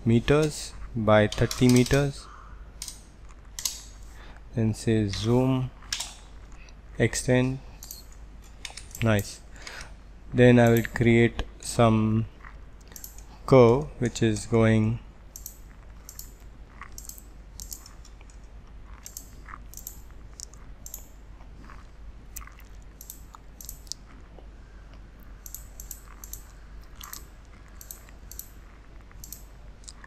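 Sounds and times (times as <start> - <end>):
faint low hum: 0.0 - 30.0
computer mouse clicking: 10.6 - 11.0, 12.8 - 13.3, 15.3 - 18.4, 19.0 - 21.1, 22.4 - 24.0, 25.3 - 30.0.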